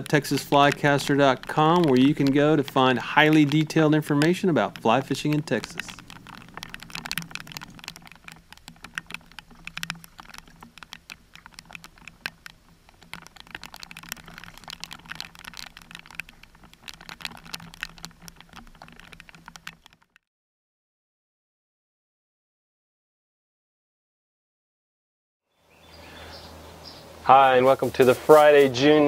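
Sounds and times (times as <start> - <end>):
raindrops pattering on camera: 0.0 - 20.2.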